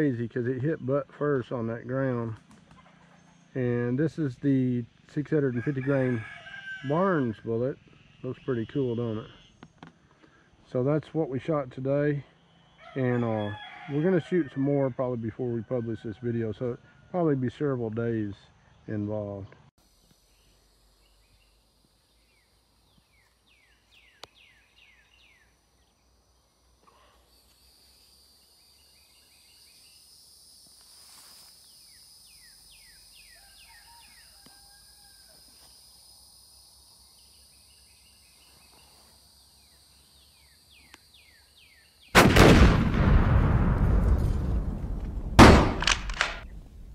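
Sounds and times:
high-pitched insect drone: 19.8 - 42.1
bird chirps: 20.2 - 26.1, 31.6 - 34.5
boom sound effect: 42.2 - 46.9.

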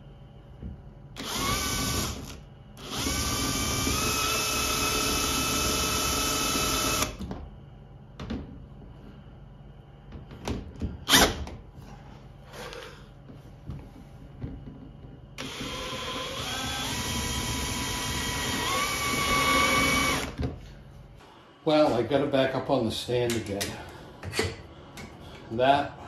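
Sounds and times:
cordless drill driving screws: 1.2 - 7.2, 15.4 - 20.4.

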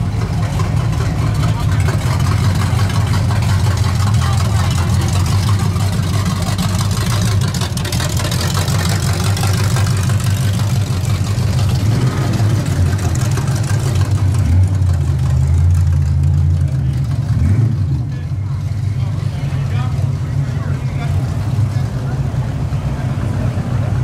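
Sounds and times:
car engines idling past: 0.0 - 24.0.

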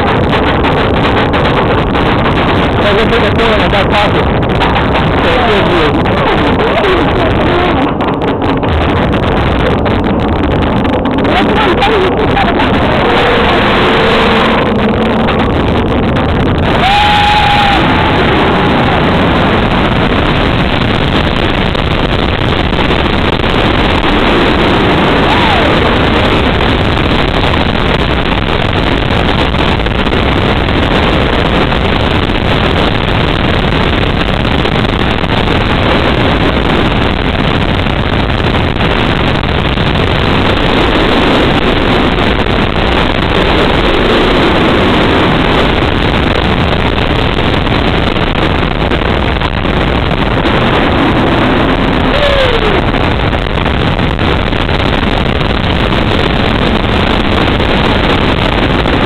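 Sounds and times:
roller coaster wheels rumbling: 0.0 - 59.0
wind rushing over microphone: 0.0 - 59.0.

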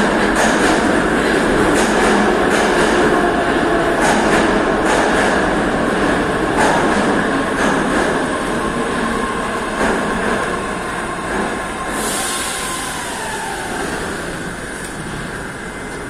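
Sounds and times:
train wheels rumbling on rails: 0.0 - 16.0
rail joint clack: 4.0 - 5.4
train brake hiss: 11.9 - 13.9.

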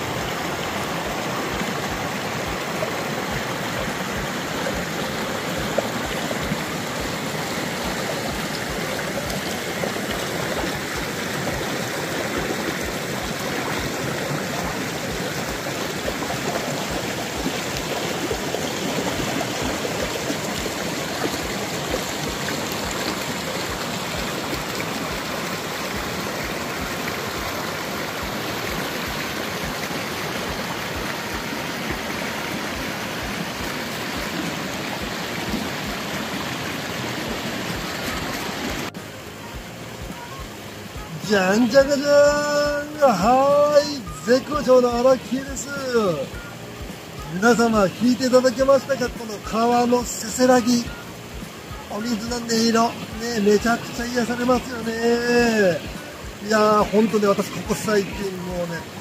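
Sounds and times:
river babbling over rocks: 0.0 - 59.0.

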